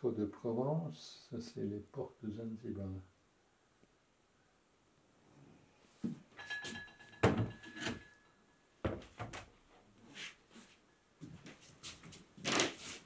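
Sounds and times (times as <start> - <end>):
faint steady high tone: 6.4 - 8.8
rustling: 9.6 - 13.0.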